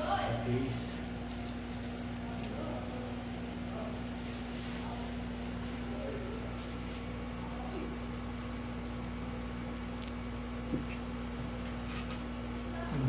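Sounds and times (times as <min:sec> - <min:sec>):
steady hum: 0:00.0 - 0:13.0.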